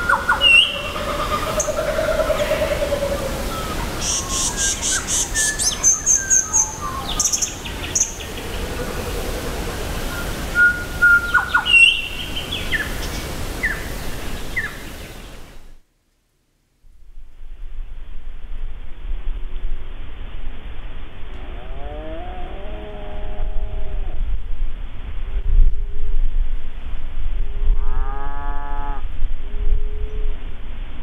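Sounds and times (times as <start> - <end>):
birds whistling and chirping: 0.0 - 8.4, 10.1 - 13.9.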